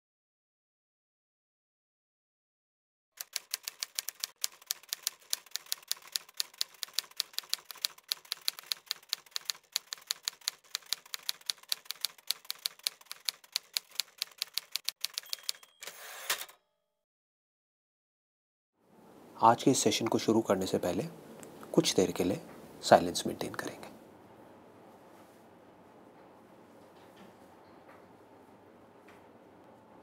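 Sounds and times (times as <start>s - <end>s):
typewriter keystrokes clacking: 3.2s - 15.6s.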